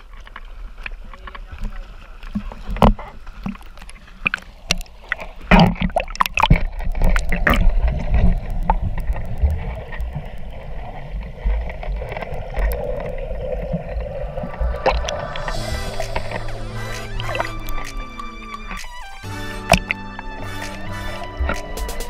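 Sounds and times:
muffled underwater rumble: 0.0 - 21.8
water splashing against camera: 0.0 - 22.0.

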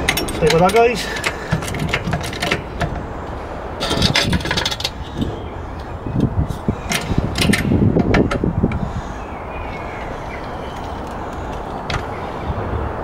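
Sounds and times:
trolley jack clicking and clunking: 0.0 - 3.1, 3.8 - 5.3, 6.8 - 8.5
low outdoor rumble: 0.0 - 13.0.

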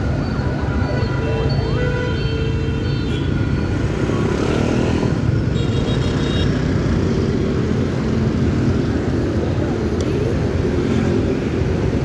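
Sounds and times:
motorbike engines passing: 3.0 - 12.0.

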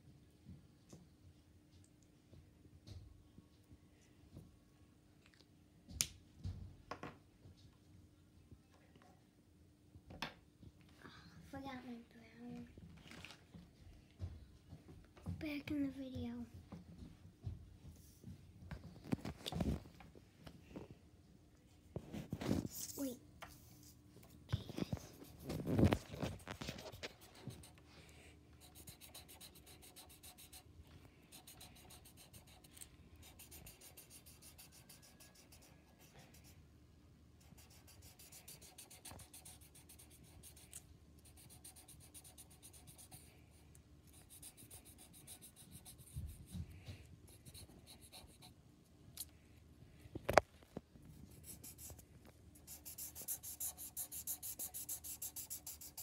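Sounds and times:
marker scribbling on paper: 28.6 - 30.7, 31.3 - 36.5, 37.4 - 43.3, 44.1 - 46.5, 47.3 - 48.5, 51.4 - 52.0, 52.6 - 56.0.

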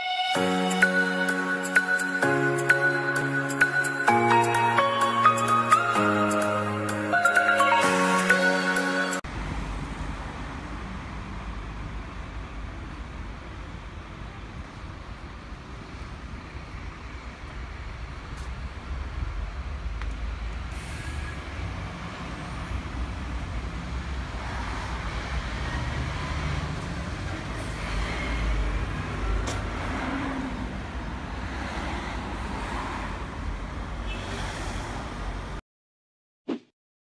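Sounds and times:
street noise: 0.0 - 35.6
bus engine rumbling: 8.8 - 34.1.

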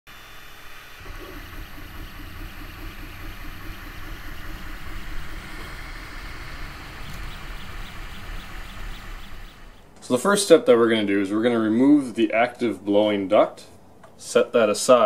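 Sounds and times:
machine running with low rumble: 0.1 - 10.0.

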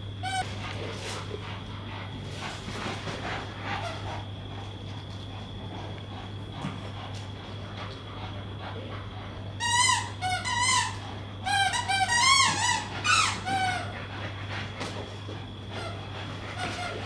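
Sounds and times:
dog whining: 9.6 - 14.0.

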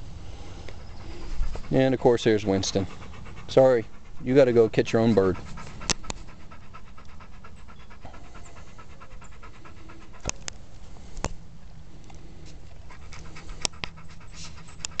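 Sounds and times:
dog panting: 0.5 - 10.9, 12.7 - 15.0.

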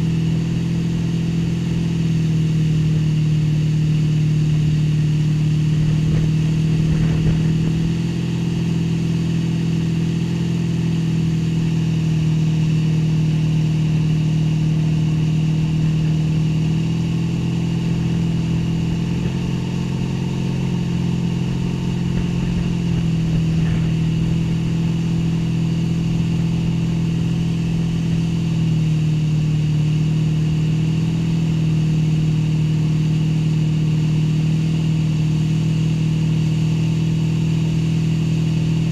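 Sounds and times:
motorboat engine droning: 0.0 - 38.9
water rushing from wake: 4.8 - 8.9, 12.2 - 31.4.

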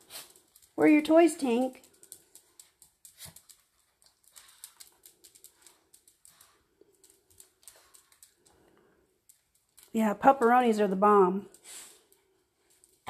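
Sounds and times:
dog toenails clicking on tile: 0.0 - 10.0, 11.4 - 13.0.

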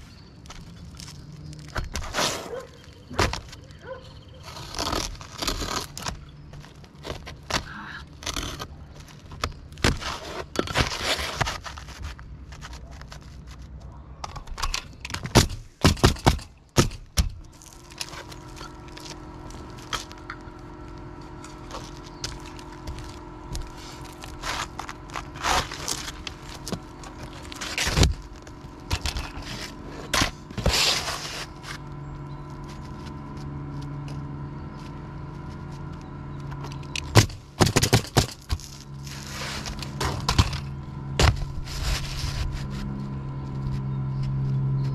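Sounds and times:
steady low hum: 0.0 - 44.9
scraping and sliding on roof: 1.0 - 3.8, 4.4 - 15.4, 17.6 - 31.9, 37.2 - 43.1.

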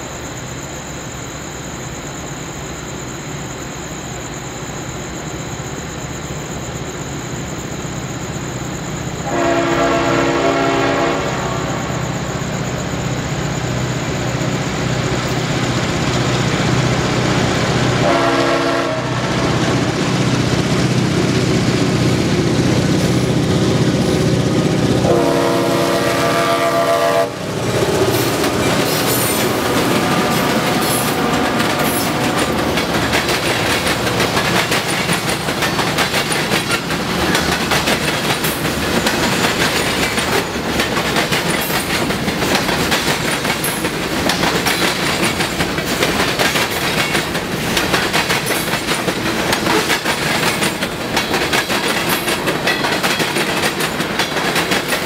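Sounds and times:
diesel locomotive engines: 0.0 - 55.0
locomotive horn blast: 9.2 - 11.9, 18.0 - 19.7, 25.0 - 28.1
train wheels clacking on rail joints: 19.2 - 55.0.

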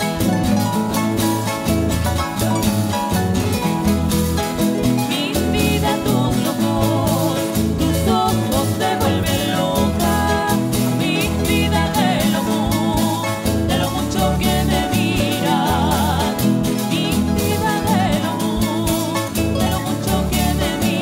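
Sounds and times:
harp playing: 0.0 - 21.0
strummed guitars: 0.0 - 21.0
person singing: 4.8 - 21.0.

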